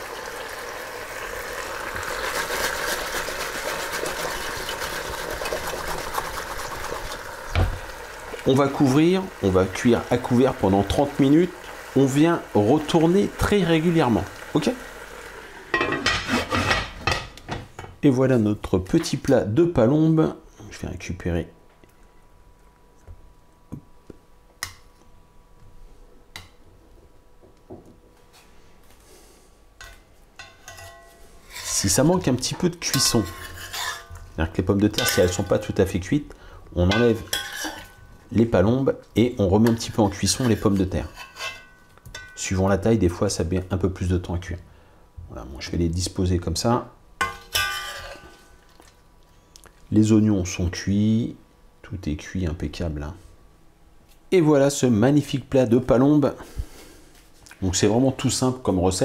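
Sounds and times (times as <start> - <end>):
food rattling in shaken pot: 1.6 - 7.3.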